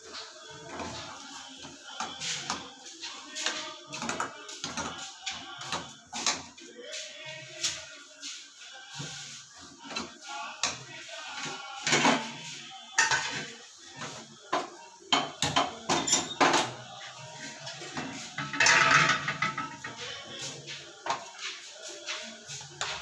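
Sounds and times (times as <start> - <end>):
steel kitchenware clattering: 13.0 - 13.5, 15.1 - 16.7, 18.0 - 20.0.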